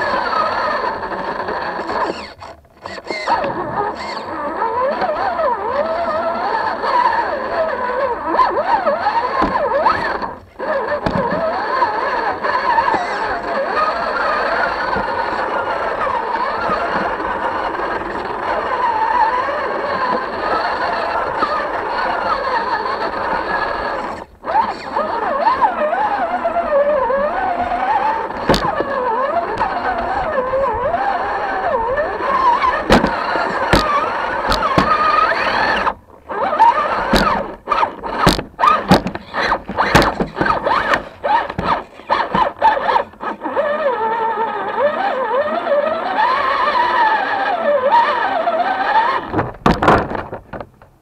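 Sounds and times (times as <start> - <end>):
toy car motor whining: 0.0 - 49.5
knocks and clatters on rocks: 38.2 - 42.5, 49.3 - 50.9.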